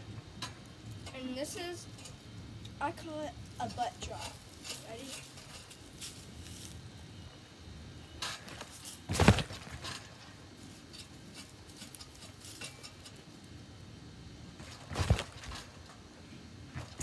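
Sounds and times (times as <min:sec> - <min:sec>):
person landing on trampoline: 0:08.3 - 0:10.3, 0:14.6 - 0:15.9, 0:16.7 - 0:17.0.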